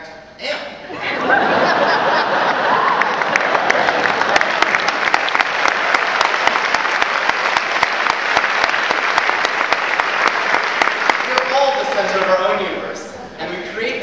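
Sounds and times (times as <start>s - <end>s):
large audience applauding: 1.9s - 12.8s.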